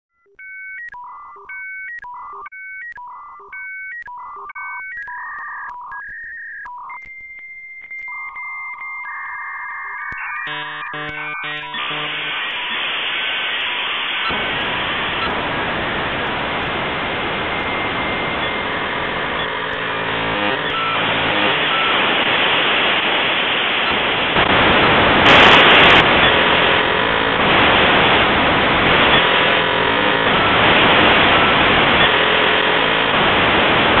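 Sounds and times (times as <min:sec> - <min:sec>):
loud glitched static noise: 0:10.0 - 0:34.0.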